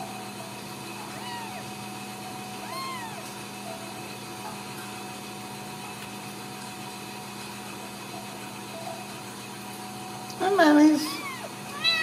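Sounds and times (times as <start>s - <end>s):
machine hum and hiss: 0.0s - 12.0s
kittens squeaking: 0.9s - 1.8s, 2.6s - 3.3s, 11.0s - 12.0s.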